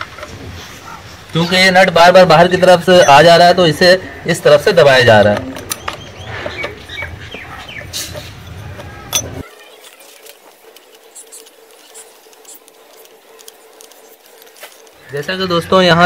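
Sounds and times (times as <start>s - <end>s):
spanners clinking and scraping: 4.6s - 15.4s
sharp metallic clicks: 5.2s - 15.1s.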